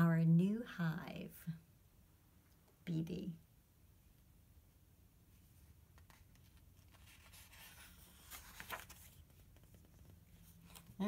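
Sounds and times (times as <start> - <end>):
paper page turning: 5.9 - 11.0.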